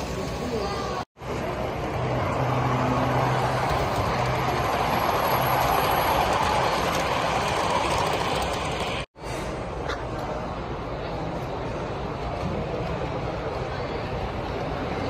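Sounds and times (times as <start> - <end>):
model train wheels rumbling: 1.3 - 9.6.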